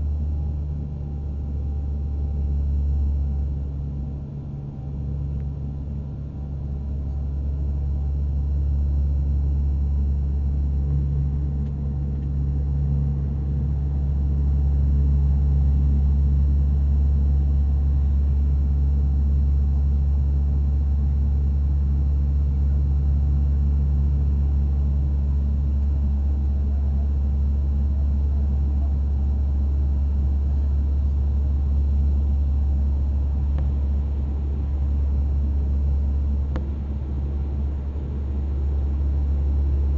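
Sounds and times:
propeller and engine drone: 0.0s - 39.9s.

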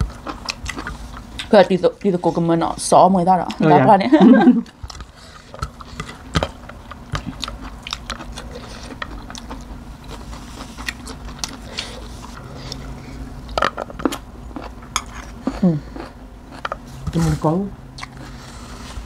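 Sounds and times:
chewing with crisp crunches: 0.0s - 1.6s, 4.6s - 17.0s, 17.9s - 18.9s.

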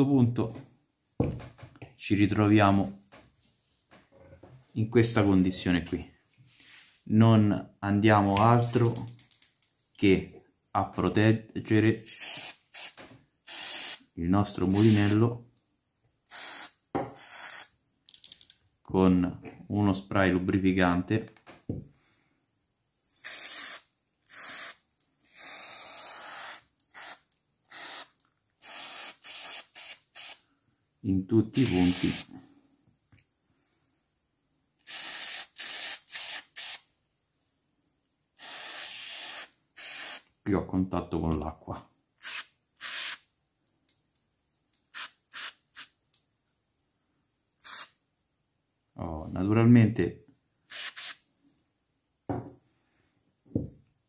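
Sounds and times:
aerosol spray hissing: 12.1s - 14.0s, 14.7s - 15.2s, 23.2s - 30.4s, 31.6s - 32.3s, 38.4s - 40.2s.

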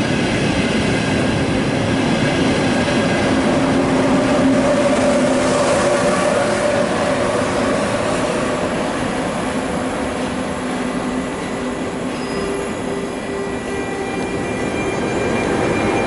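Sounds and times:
train wheels rumbling on rails: 0.0s - 16.0s
squealing tones: 12.0s - 16.0s.

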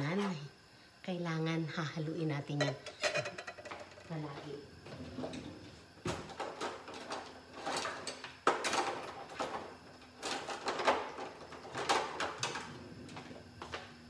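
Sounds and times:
drawer and utensils rattling: 2.6s - 4.1s, 5.1s - 13.2s.

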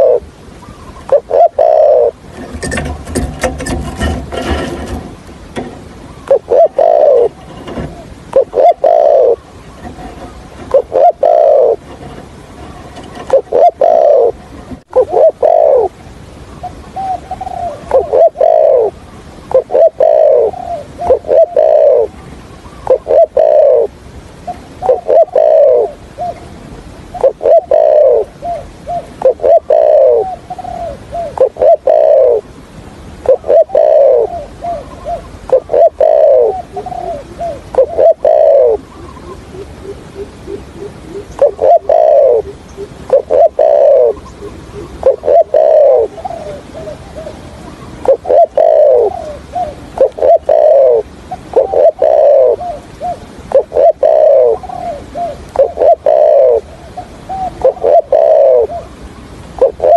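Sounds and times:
dove cooing: 0.0s - 16.0s, 16.6s - 32.6s, 33.2s - 59.9s.

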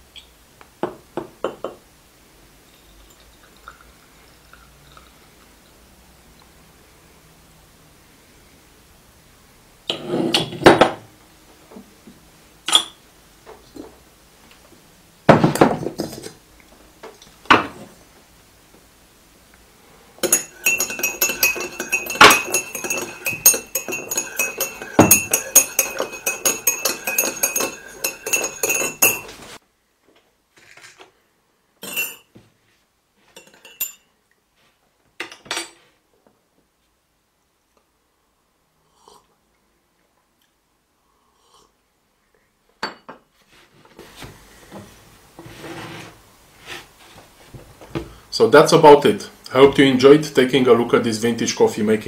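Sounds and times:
porcelain and metal knocks: 20.2s - 29.4s
teaspoon clinking in porcelain cup: 20.2s - 29.4s.

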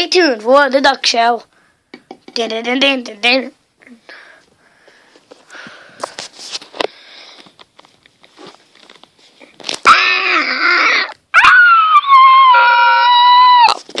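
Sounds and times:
dog crying high-pitched: 9.9s - 13.8s.

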